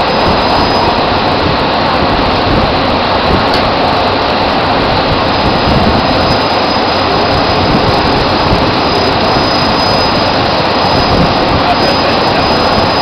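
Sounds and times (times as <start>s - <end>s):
drilling rig machinery running: 0.0s - 13.0s.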